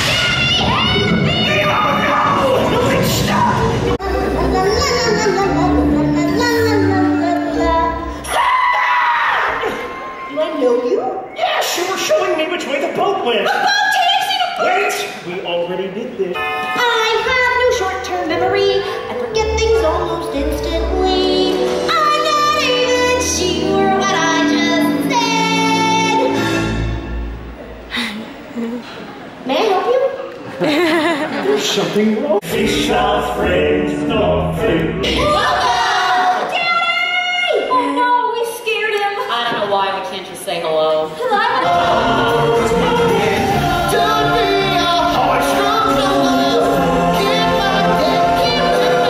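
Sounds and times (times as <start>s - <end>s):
instrumental backing music: 3.6s - 8.2s
chorus of voices singing: 32.4s - 36.6s, 41.5s - 49.0s.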